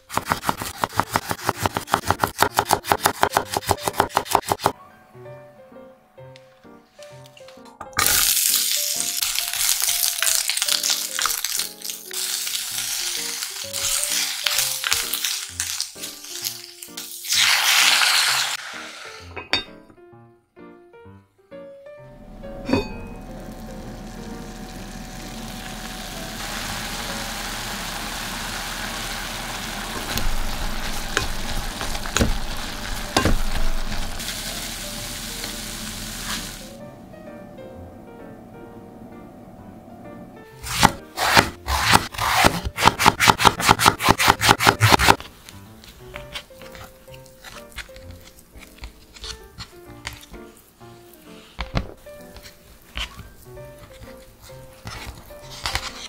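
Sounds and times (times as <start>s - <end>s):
vegetables sizzling in hot oil: 8.0s - 19.3s, 23.4s - 36.8s
liquid boiling: 23.2s - 36.9s
wooden spatula stirring: 45.7s - 50.4s, 51.2s - 56.0s.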